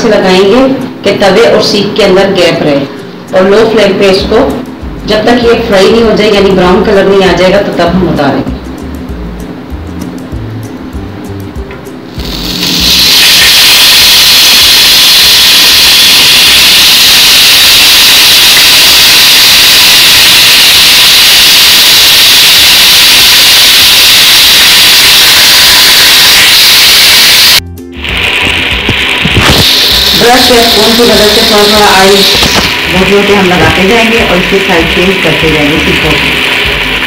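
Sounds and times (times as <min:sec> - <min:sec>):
meat sizzling in hot oil: 0:12.2 - 0:13.9, 0:28.0 - 0:37.0.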